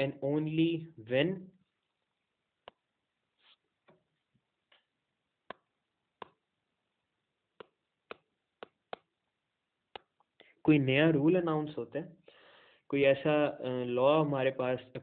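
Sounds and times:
stylus tapping tablet screen: 2.6 - 6.5, 7.5 - 9.3.

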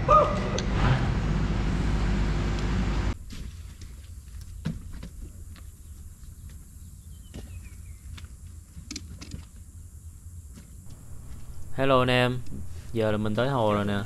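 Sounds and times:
steady low rumble: 10.9 - 14.0.

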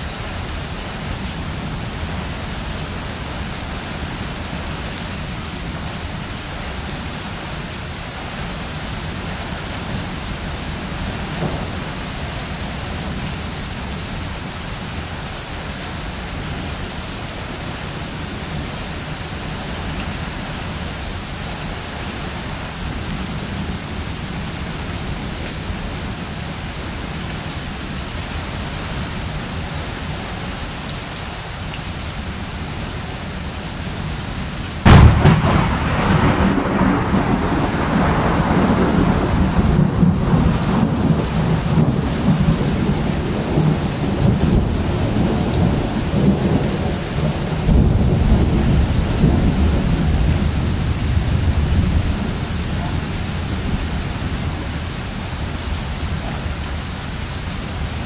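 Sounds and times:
steady rain: 0.0 - 58.0
thunderclap and rumbling thunder: 34.8 - 52.9.

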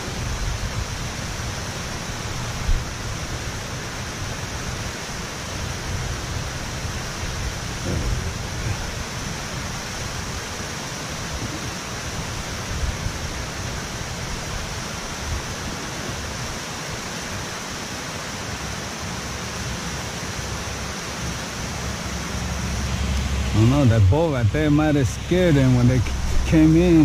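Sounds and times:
water rushing from spillway: 0.0 - 27.0
low rumble: 21.8 - 27.0.

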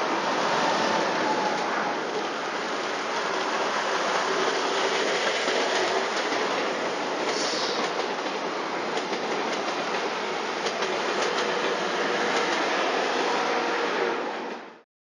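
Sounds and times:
train rolling rumble: 0.0 - 14.7.

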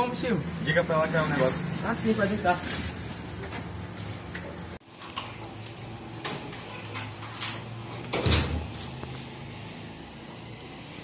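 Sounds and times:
metal gate and door clicks and knocks: 6.2 - 8.8.

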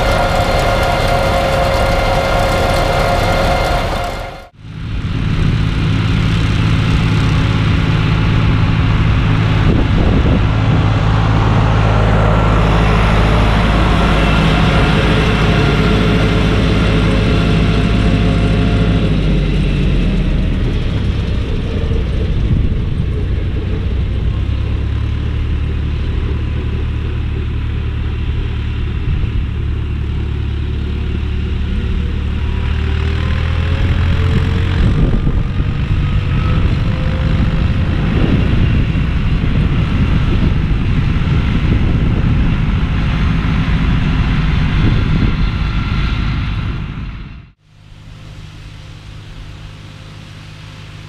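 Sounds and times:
tractor engine under load: 0.0 - 4.6
low rumbling noise: 0.0 - 51.0.

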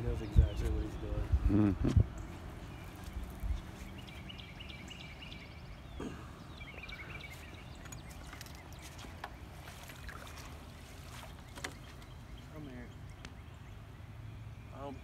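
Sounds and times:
bird calls chirping: 0.0 - 15.0.

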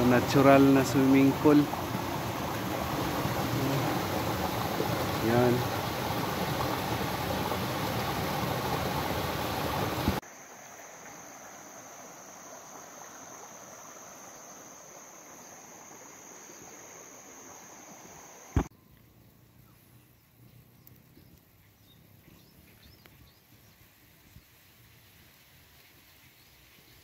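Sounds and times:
stream water splashing over rocks: 0.0 - 14.3
high-pitched insect drone: 10.2 - 18.7.

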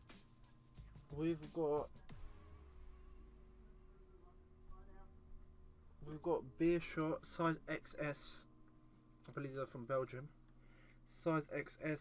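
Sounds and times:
faint background music: 0.0 - 12.0
low hum: 1.2 - 12.0.

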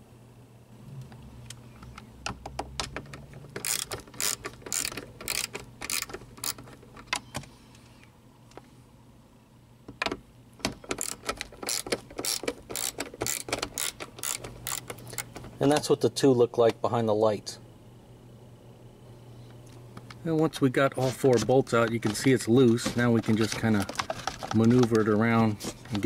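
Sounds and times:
socket ratchet clicking: 3.1 - 6.7, 10.6 - 15.3.

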